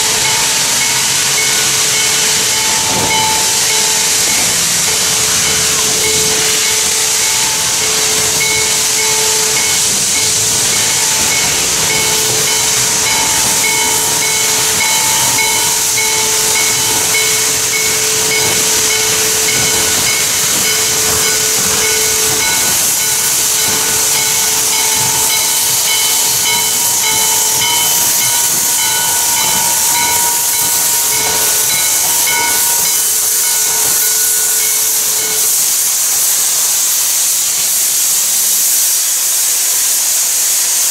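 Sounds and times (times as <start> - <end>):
steam locomotive hissing: 0.0 - 40.9.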